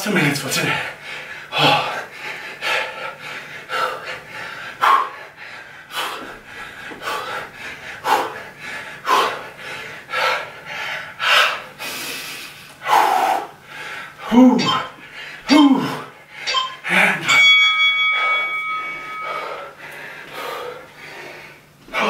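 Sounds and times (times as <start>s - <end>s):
man breathing heavily: 0.6s - 22.0s.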